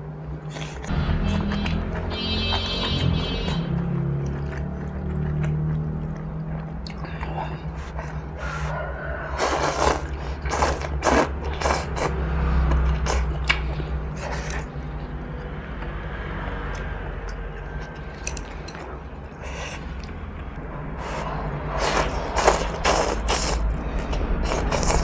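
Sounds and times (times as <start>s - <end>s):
chewing with small clicks: 4.1s - 8.4s
slurping noodles: 6.8s - 14.9s, 21.0s - 25.0s.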